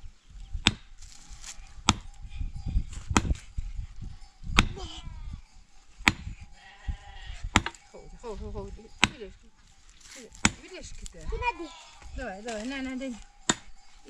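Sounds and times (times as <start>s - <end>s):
sheep bleating: 6.5s - 7.5s, 11.2s - 12.2s.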